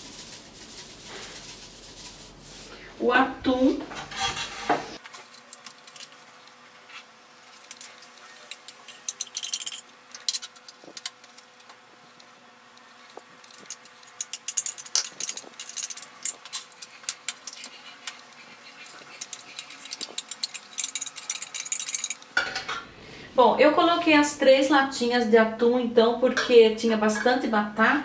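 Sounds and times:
fork scraping metal can: 0:03.9 - 0:05.0, 0:13.6 - 0:22.2.

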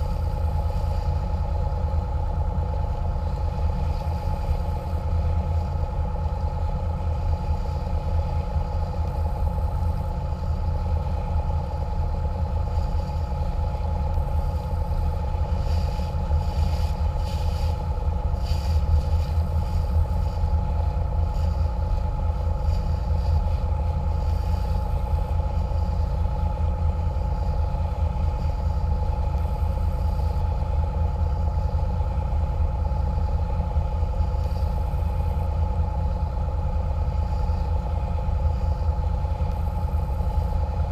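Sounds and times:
boat engines droning: 0:00.0 - 0:40.9
steady whine: 0:00.0 - 0:40.9.

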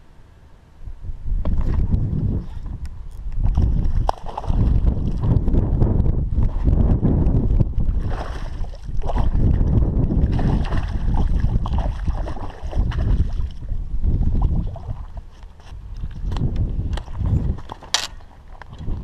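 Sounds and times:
wind rumble on microphone: 0:00.8 - 0:19.0
fish splashing at water surface: 0:03.5 - 0:05.3.

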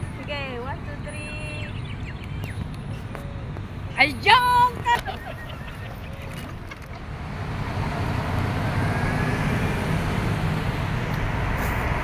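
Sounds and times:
road traffic passing: 0:00.0 - 0:12.0.

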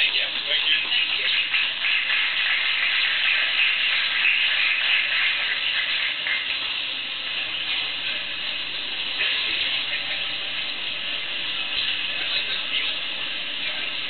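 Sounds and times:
steady hiss: 0:00.0 - 0:14.0.

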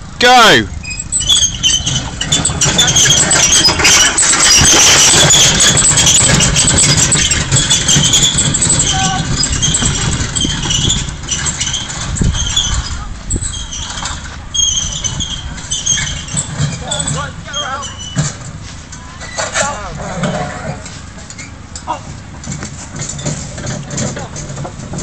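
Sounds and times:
high squeaks of wheels: 0:00.3 - 0:25.0
rumbling wind on microphone: 0:00.8 - 0:17.4.

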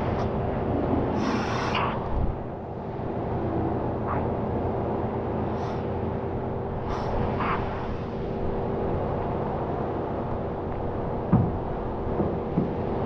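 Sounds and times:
pressure washer hum and hiss: 0:01.1 - 0:02.1, 0:05.4 - 0:06.0, 0:06.8 - 0:08.4.

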